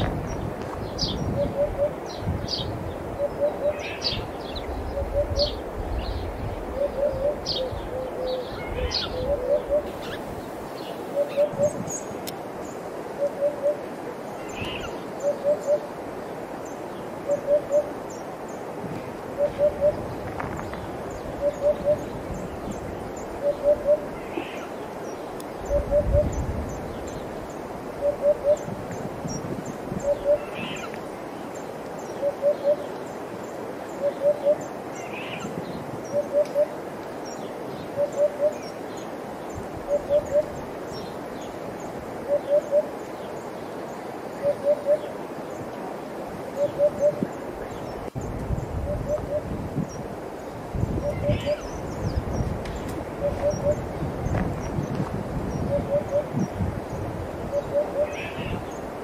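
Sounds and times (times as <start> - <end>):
hoopoe singing: 6.8 - 10.1, 11.1 - 11.9, 19.4 - 20.1, 21.3 - 22.3, 53.1 - 54.0, 55.6 - 56.4.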